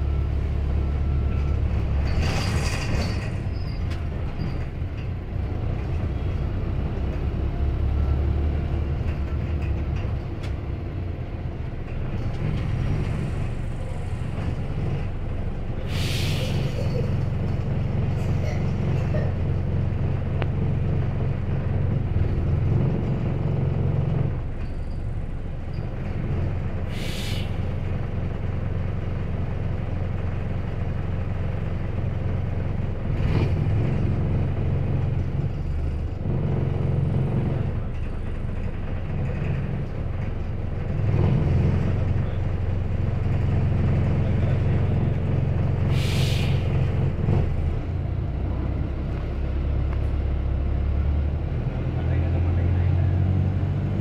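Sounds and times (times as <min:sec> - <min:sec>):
bus engine drone: 0:00.0 - 0:54.0
pneumatic air hisses: 0:15.9 - 0:16.8, 0:26.9 - 0:27.6, 0:45.9 - 0:46.6.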